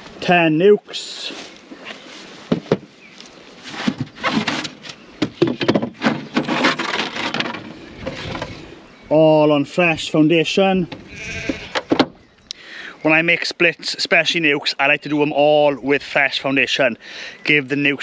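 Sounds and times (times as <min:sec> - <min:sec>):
polystyrene and wood scraping: 0:01.1 - 0:05.2, 0:06.0 - 0:08.8.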